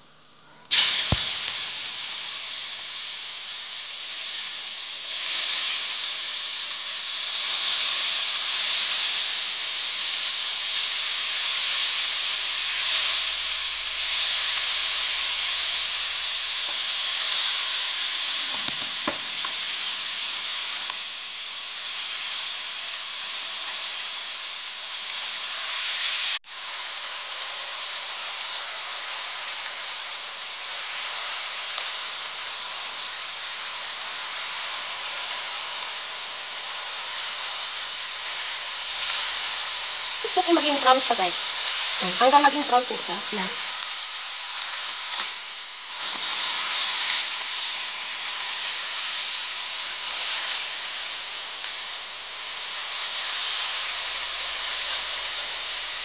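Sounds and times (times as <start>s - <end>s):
meat sizzling in hot oil: 0.7s - 56.0s.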